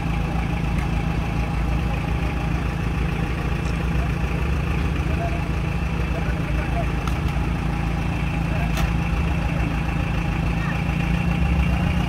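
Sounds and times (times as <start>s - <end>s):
buggy engine idling: 0.0s - 12.0s.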